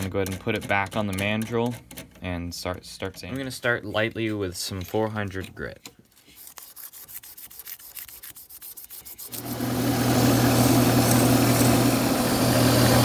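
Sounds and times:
hand rubbing strokes: 0:06.0 - 0:09.5
sandpaper hissing on spinning wood: 0:06.4 - 0:13.0
wood lathe humming: 0:09.3 - 0:13.0.

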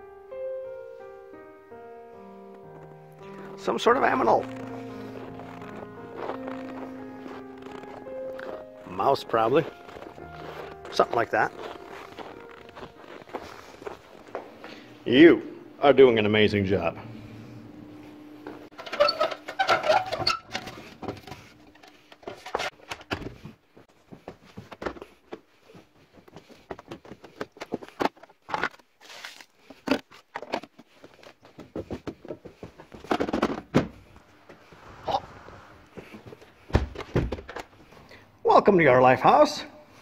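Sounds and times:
footsteps: 0:02.7 - 0:15.0, 0:19.9 - 0:28.4, 0:30.6 - 0:38.2.

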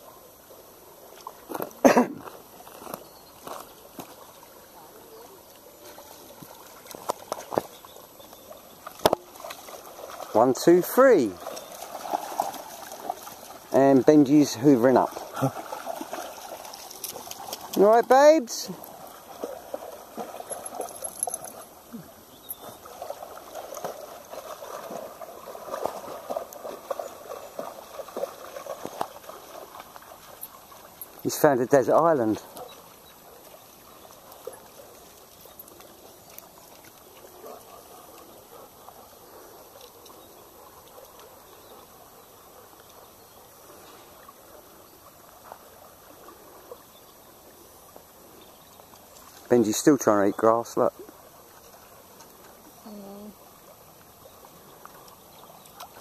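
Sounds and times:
water trickling over gravel: 0:01.1 - 0:39.0, 0:42.7 - 0:56.0
dogs splashing in water: 0:01.1 - 0:52.8, 0:53.4 - 0:56.0.

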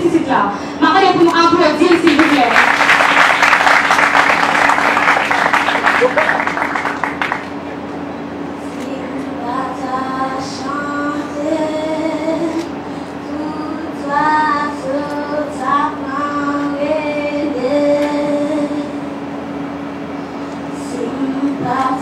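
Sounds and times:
steady low hum: 0:00.0 - 0:22.0
girl singing into a microphone: 0:08.7 - 0:19.0, 0:20.8 - 0:22.0.

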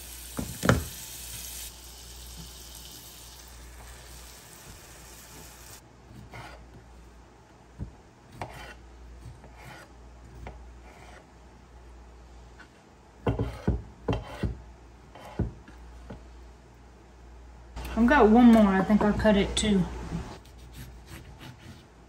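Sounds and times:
sandwich sizzling in a skillet: 0:00.0 - 0:05.8.

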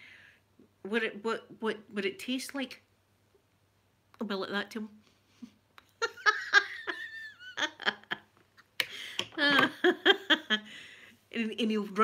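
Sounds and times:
woman laughing: 0:05.4 - 0:10.8.

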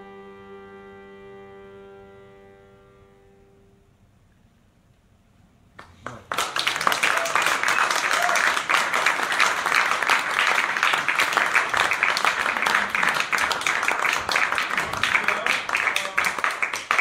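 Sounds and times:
audience applauding: 0:05.8 - 0:17.0.

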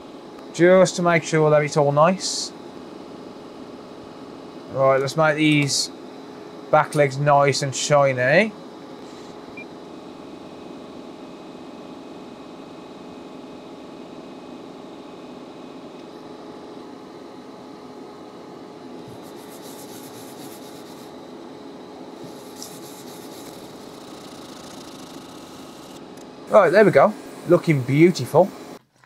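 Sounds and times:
fan whirring: 0:00.0 - 0:28.8
brush scrubbing circuit board: 0:19.0 - 0:21.2, 0:22.2 - 0:25.6.

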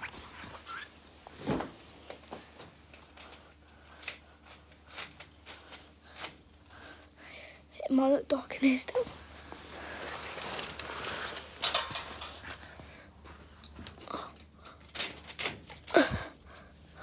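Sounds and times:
fabric rustling: 0:08.7 - 0:14.0.

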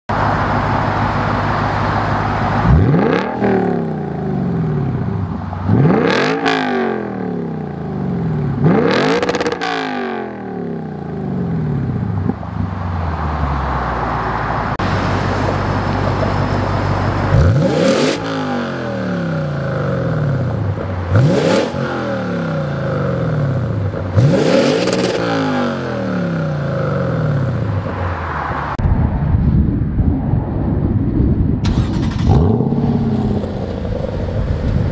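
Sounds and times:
engine revving: 0:02.5 - 0:12.5, 0:17.2 - 0:27.9, 0:31.6 - 0:34.9
car engine idling: 0:10.9 - 0:21.4.

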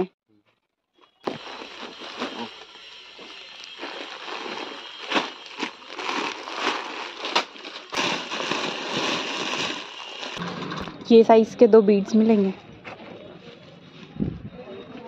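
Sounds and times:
plastic bags crinkling: 0:01.2 - 0:10.4.

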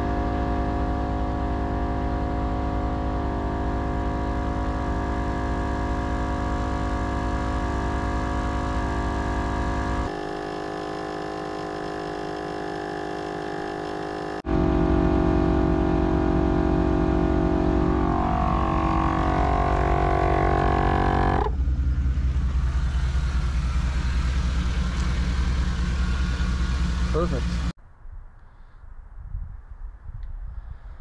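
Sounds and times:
air compressor running: 0:00.0 - 0:21.6.

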